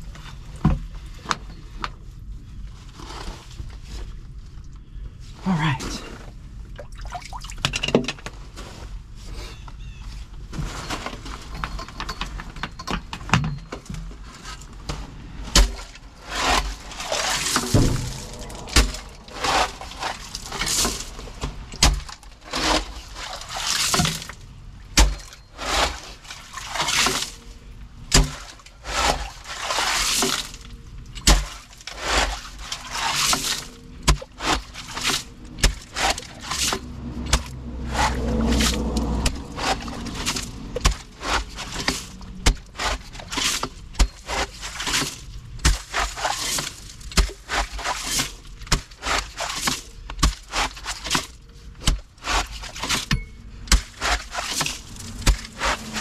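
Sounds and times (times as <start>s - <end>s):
stones scraping and grinding: 14.1s - 56.0s
metal blades crunching into gravel: 14.4s - 56.0s.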